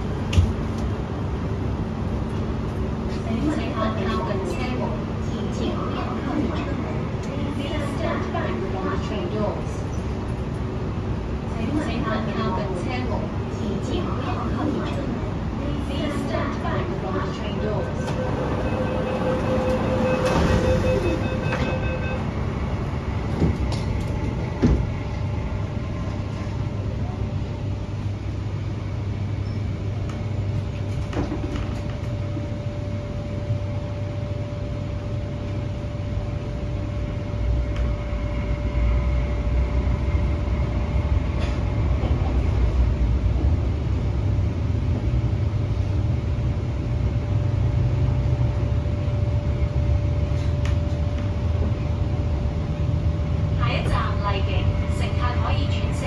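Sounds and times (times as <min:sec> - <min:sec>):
train wheels rumbling: 0:13.3 - 0:29.1
short electronic beeps: 0:18.6 - 0:22.4.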